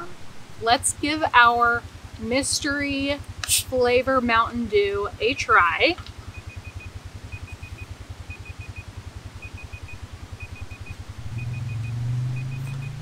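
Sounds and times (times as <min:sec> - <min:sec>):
idling engine rumble: 0:00.0 - 0:13.0
digital timer alarm beeping: 0:06.3 - 0:13.0.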